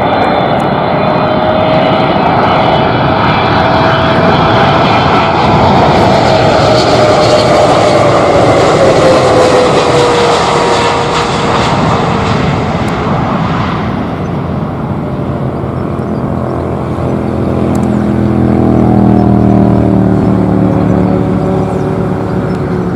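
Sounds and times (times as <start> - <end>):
jet engines passing close: 0.0 - 22.9.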